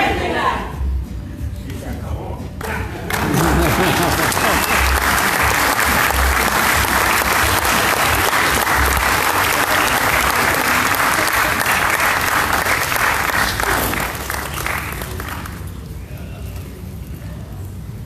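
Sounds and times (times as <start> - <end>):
audience applauding: 2.6 - 16.0.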